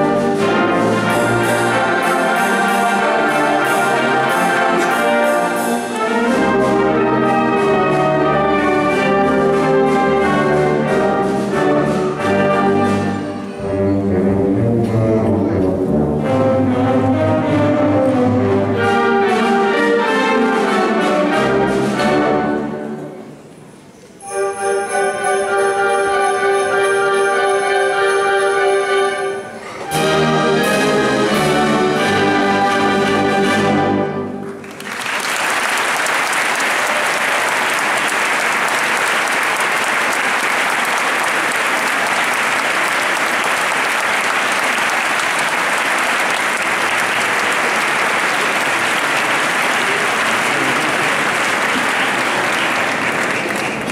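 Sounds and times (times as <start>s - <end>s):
wind band playing chords: 0.0s - 53.9s
audience applause: 34.5s - 53.9s.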